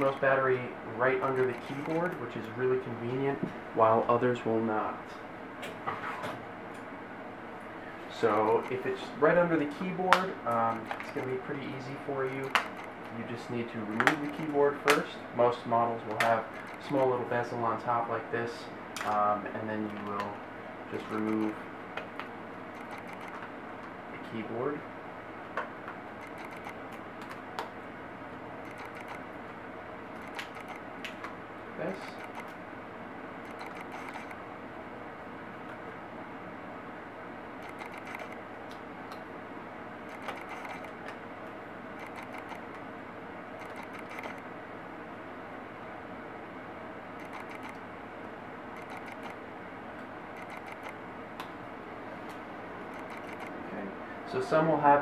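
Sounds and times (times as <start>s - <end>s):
plastic keyboard clicks: 13.9s - 15.0s, 30.2s - 30.8s, 33.5s - 34.4s, 40.1s - 40.9s, 42.0s - 42.7s, 43.6s - 44.4s, 53.0s - 53.5s.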